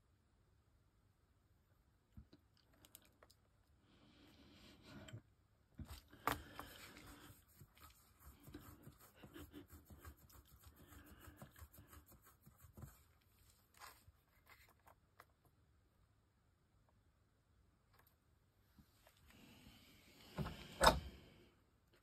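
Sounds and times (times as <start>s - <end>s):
scratchy handling noise: 5.8s - 15.5s.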